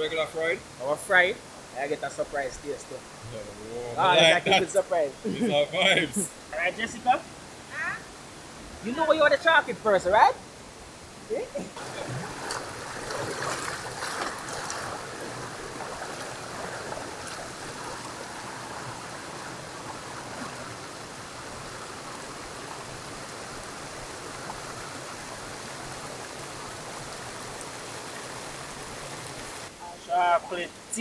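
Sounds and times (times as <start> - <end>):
river rushing over rocks: 0.0 - 31.0.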